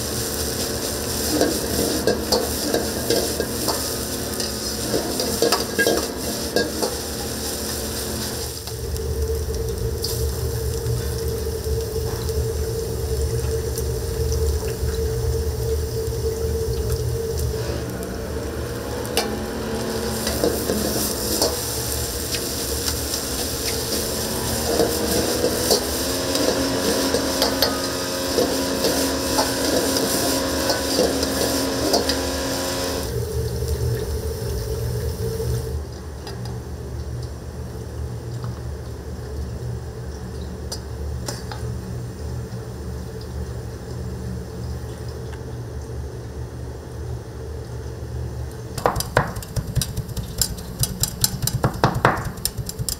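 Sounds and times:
food sizzling in a wok: 0.0 - 35.8
metal ladle scraping a wok: 1.2 - 7.1, 20.0 - 32.9.

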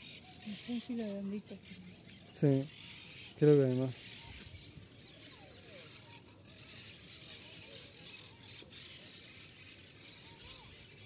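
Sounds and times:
distant bird calls: 0.0 - 11.0.

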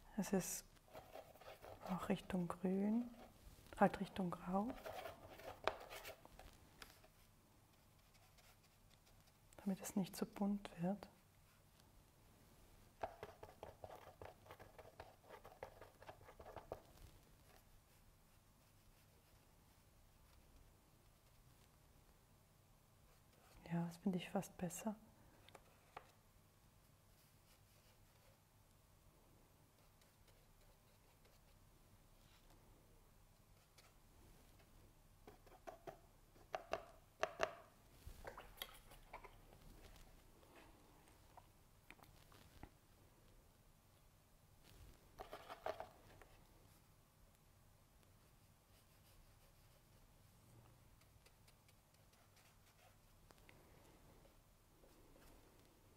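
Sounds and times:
paintbrush scraping on palette: 0.8 - 2.3, 4.0 - 9.4.

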